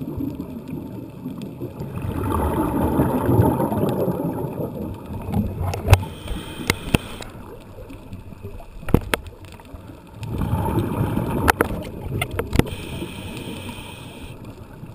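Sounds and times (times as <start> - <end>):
bubbling exhaled air underwater: 0.0 - 9.1, 9.8 - 14.9
sharp clicks: 5.7 - 7.3
regulator inhaling hiss: 6.0 - 7.4, 12.6 - 14.5.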